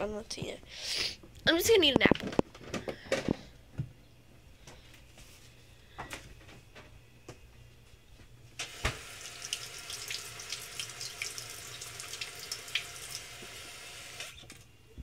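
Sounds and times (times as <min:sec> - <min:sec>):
faucet water running into sink: 0:08.6 - 0:14.4.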